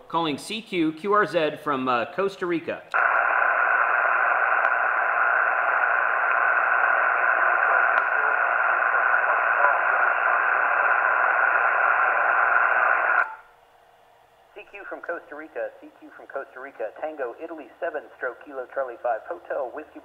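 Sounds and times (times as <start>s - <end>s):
radio static hiss: 2.9s - 13.4s, 14.6s - 20.0s.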